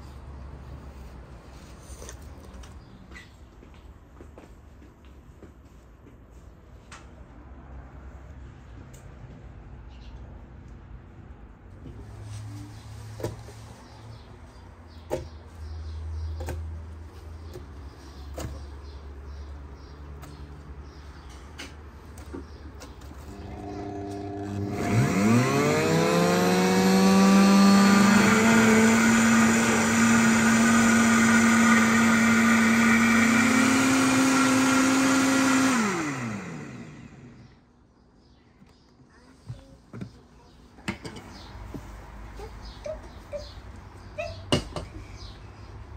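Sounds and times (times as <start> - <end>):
blender motor whining: 23.3 - 37.4.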